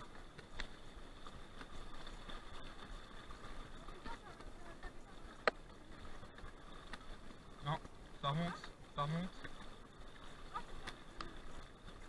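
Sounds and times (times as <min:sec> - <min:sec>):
grass swishing against bike: 0:00.0 - 0:12.0
water sloshing: 0:00.0 - 0:12.0.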